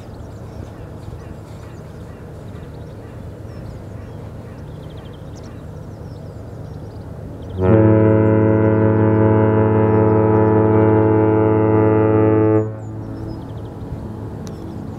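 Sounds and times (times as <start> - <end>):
foghorn blast: 7.5 - 13.1.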